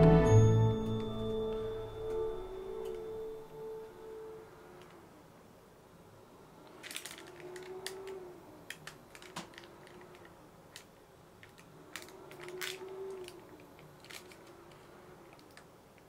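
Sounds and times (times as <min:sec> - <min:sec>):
faint rising and falling tone: 0:00.0 - 0:05.3.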